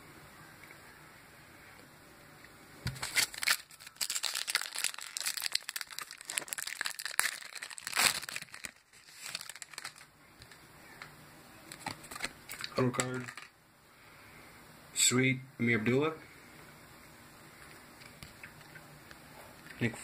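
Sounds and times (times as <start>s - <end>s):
foil wrapper crinkling and tearing: 2.9s - 10.1s, 11.7s - 13.5s.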